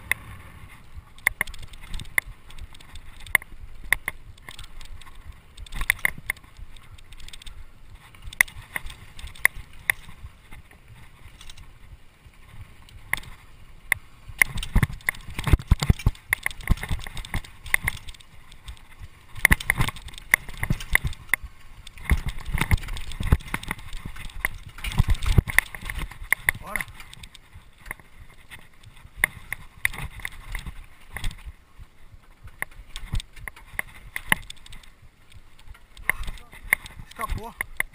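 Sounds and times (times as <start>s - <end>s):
bike chain and frame rattling: 0.0s - 37.9s
wheels thumping over bumps: 0.0s - 37.9s.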